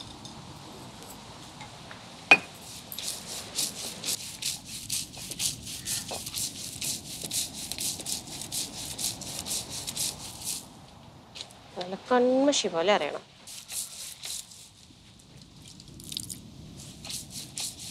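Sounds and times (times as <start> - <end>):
stone grinding on stone: 2.6 - 10.6.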